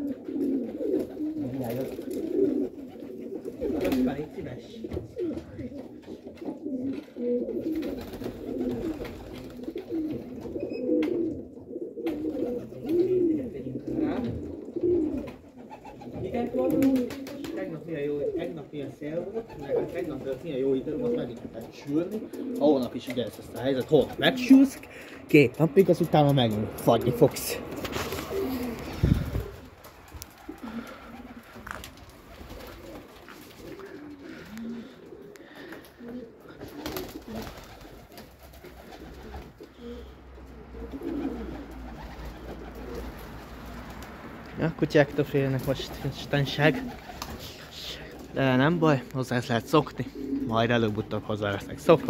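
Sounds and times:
pigeons cooing: 0.0 - 52.0.

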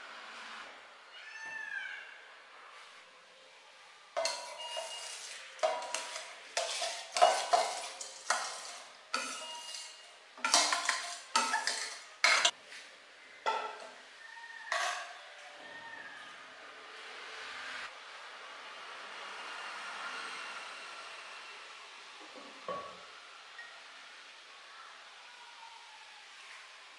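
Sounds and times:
rice spilling into pot: 4.2 - 12.5
spoon scraping metal bowl: 4.2 - 12.6, 14.7 - 15.2
spoon stirring rice: 4.2 - 12.6, 14.7 - 15.2.

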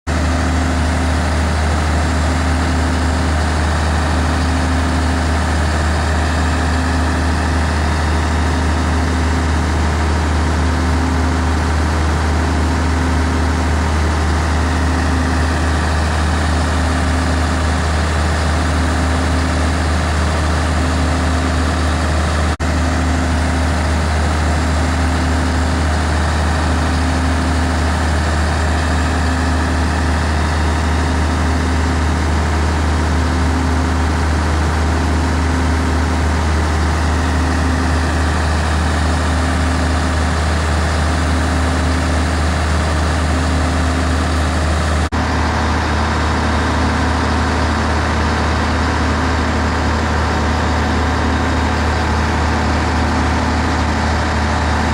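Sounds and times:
diesel engine running under load: 0.1 - 54.9.

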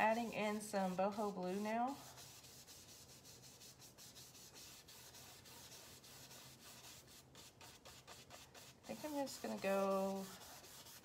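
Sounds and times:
brush scratching on canvas: 0.0 - 11.0.

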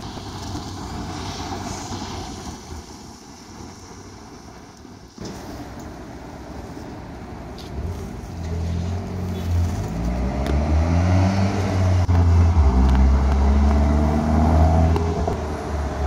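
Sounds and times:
car engine accelerating hard: 8.8 - 16.0.

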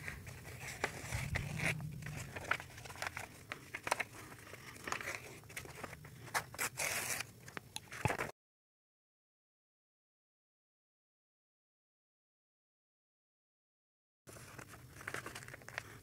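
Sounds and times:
paper rustling and crackling: 0.0 - 8.3, 14.3 - 16.0.

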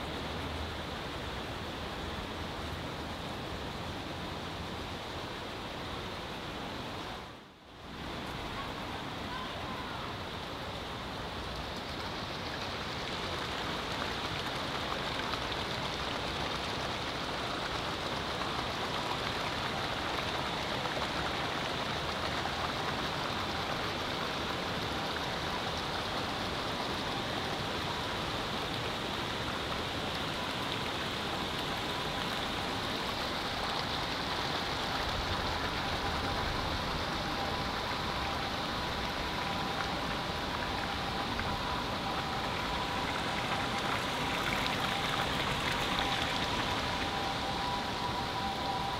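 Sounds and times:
running water rushing: 0.0 - 48.9
faint high steady tone: 24.6 - 48.9.

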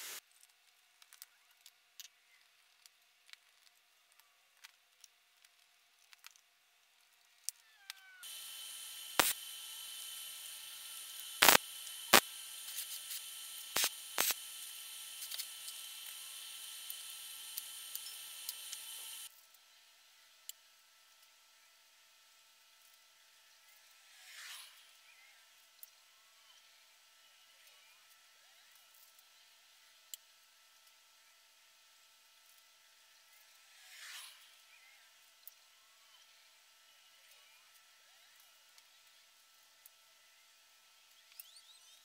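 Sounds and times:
arc welding crackling: 0.0 - 0.2, 8.2 - 19.3
welding hiss: 0.0 - 0.2, 8.2 - 19.3
wires clicking: 9.1 - 9.5, 11.0 - 19.3.

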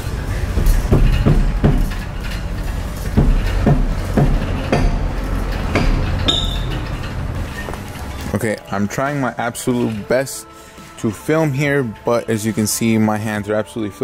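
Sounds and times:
hammer blows on brake rotor: 0.3 - 7.0.

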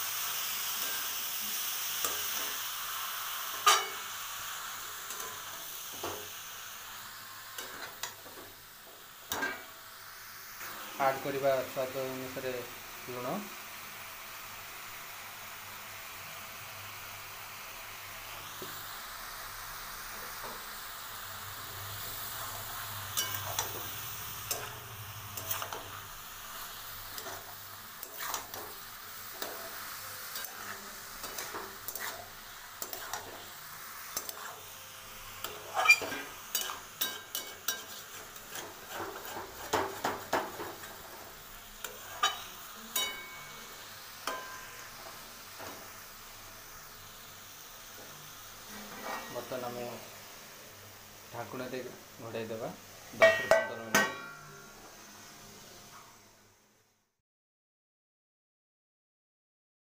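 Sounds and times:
frying sizzle: 0.0 - 57.1
metal spatula scraping a wok: 3.5 - 4.1, 22.3 - 34.7, 35.3 - 45.9, 48.6 - 49.8.

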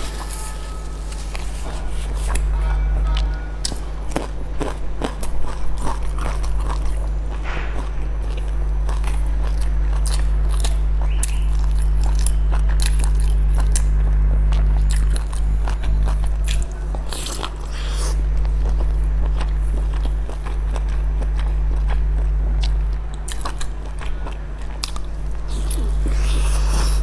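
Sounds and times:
steady low hum: 0.0 - 27.0
chewing with wet mouth clicks: 2.3 - 27.0.

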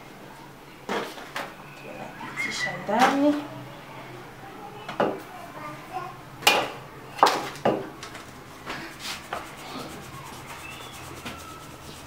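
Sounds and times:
flour sifting through metal sieve: 8.8 - 12.0.

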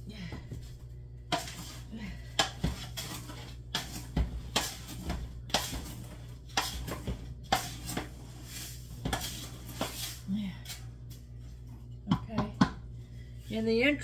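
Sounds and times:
spoon scraping dry powder: 7.5 - 10.3.

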